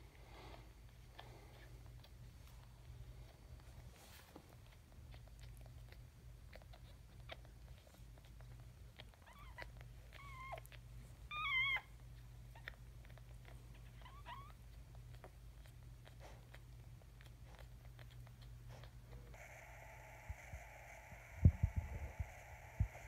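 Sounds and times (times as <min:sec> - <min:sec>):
faint low hum: 0:00.0 - 0:23.0
puppies crying: 0:09.0 - 0:14.6.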